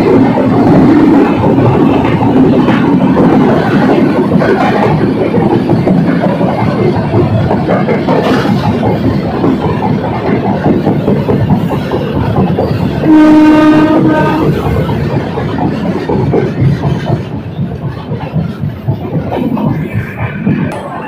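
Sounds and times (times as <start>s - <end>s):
train wheels rumbling on rails: 0.0s - 21.0s
train horn blast: 13.0s - 14.6s.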